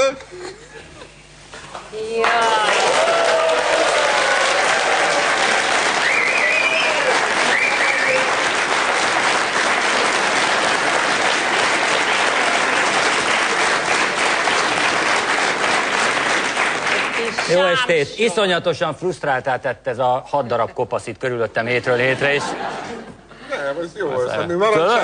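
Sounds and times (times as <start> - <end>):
audience applauding: 2.2 - 18.0
whoop or whistle: 6.0 - 8.3.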